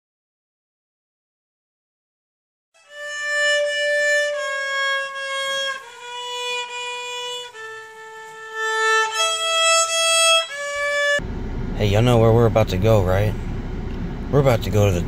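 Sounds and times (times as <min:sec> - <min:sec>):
violin slow bowed notes: 0:02.8 - 0:11.2.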